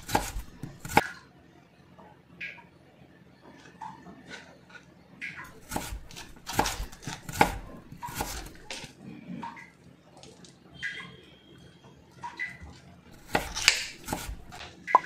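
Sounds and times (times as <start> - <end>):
knife cutting cauliflower: 0.0 - 1.1, 5.5 - 8.9, 13.1 - 14.7.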